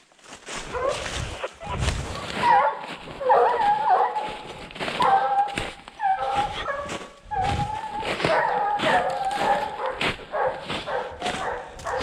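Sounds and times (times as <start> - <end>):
hounds baying and howling: 0.5 - 12.0.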